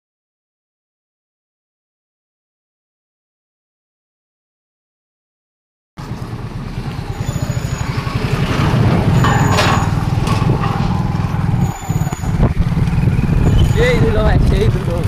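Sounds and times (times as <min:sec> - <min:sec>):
vehicle engine drone: 0:06.0 - 0:15.0.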